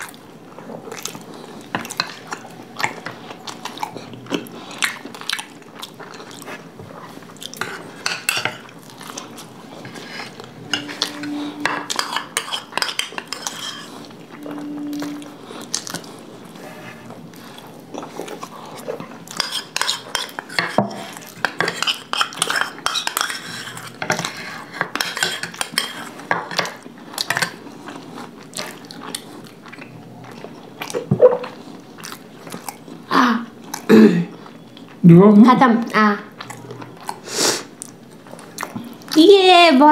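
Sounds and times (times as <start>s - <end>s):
chewing: 0.0s - 11.2s, 15.6s - 35.0s, 35.8s - 39.2s
metal spoons scraping bowls: 9.6s - 17.1s.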